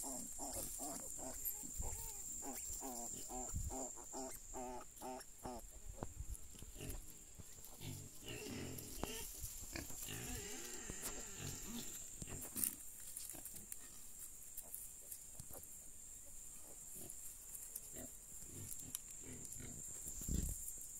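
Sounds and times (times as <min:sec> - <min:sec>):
rustling dry leaves and straw: 0:00.0 - 0:04.2, 0:06.2 - 0:20.9
piglets grunting softly: 0:07.7 - 0:12.5.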